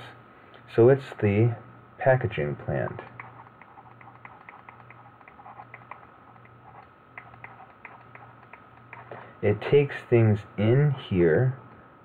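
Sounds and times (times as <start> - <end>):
electrical hum: 0.0 - 12.0
stylus ticking on tablet: 3.1 - 9.1.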